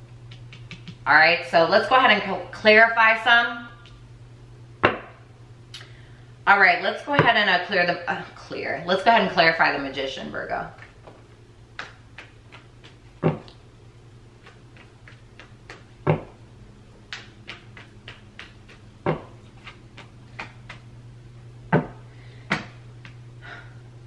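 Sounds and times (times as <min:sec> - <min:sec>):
cards shuffling: 0:17.2 - 0:20.8.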